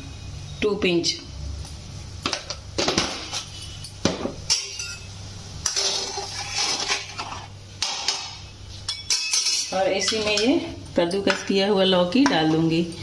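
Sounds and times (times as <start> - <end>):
water boiling: 4.5 - 10.0
spoon clinking against pot: 8.9 - 11.5.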